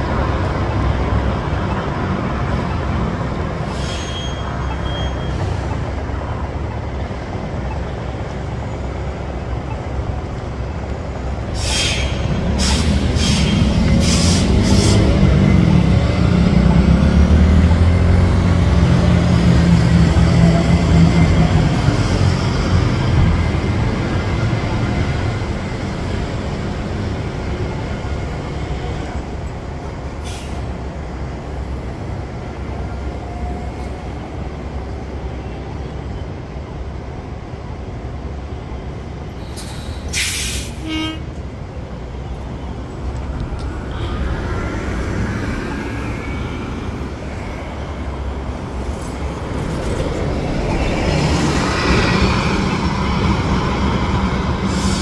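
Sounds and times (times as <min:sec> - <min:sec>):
heavy vehicle traffic: 0:00.0 - 0:55.0
air hiss: 0:11.5 - 0:15.1, 0:39.4 - 0:40.9, 0:54.6 - 0:55.0
vehicle approaching: 0:13.0 - 0:27.9.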